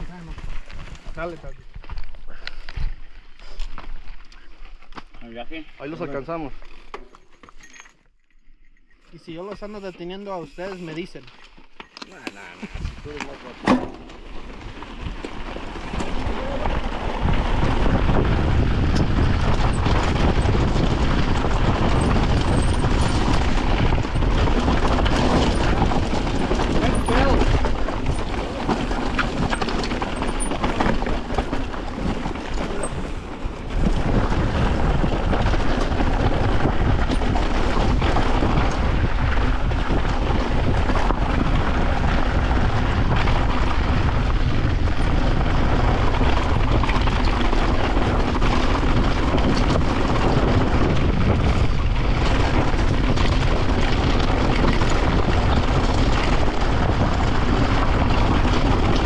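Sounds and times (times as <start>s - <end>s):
bike rattling over rocks: 0.0s - 59.0s
wind rushing on microphone: 12.4s - 13.5s, 14.6s - 59.0s.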